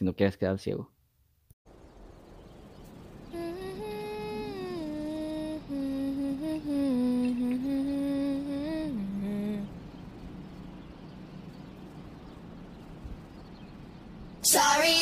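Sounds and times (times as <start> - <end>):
person humming a slow tune: 3.3 - 10.0.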